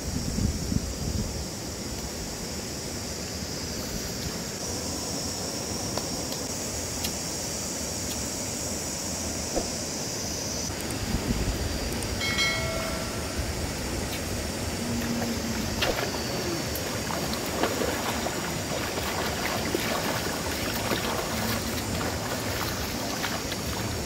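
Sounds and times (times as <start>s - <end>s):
rushing river water: 12.2s - 24.0s
water splashing: 14.8s - 24.0s.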